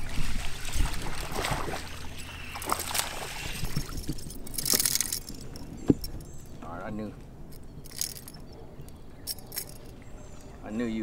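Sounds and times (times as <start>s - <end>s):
fish splashing at water surface: 0.0s - 5.2s
water sloshing: 0.0s - 6.6s, 7.2s - 10.2s.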